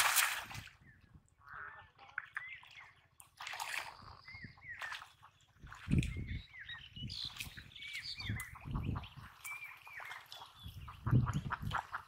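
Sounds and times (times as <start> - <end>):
water sloshing and splashing: 0.0 - 1.3, 1.9 - 12.0
small bird chirping: 6.0 - 11.1.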